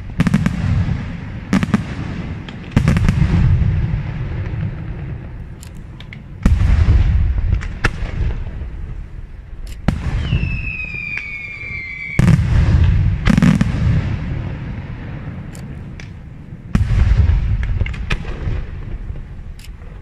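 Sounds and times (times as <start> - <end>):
fireworks bursting with booms: 0.0 - 20.0
sharp firework cracks: 0.0 - 20.0
firework whistle: 9.9 - 13.6.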